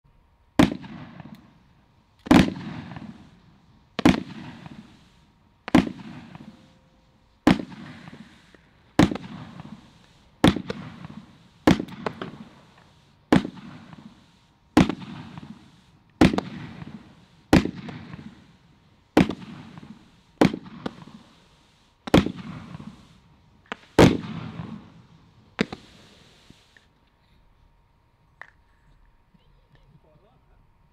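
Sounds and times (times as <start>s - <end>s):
firework shots: 0.5s - 26.9s
firework effects hissing: 0.6s - 27.6s.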